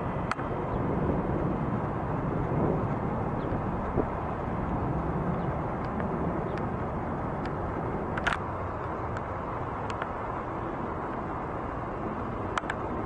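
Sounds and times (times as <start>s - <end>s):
jet engines low rumble: 0.0s - 13.0s
faint high ticks: 5.3s - 8.4s.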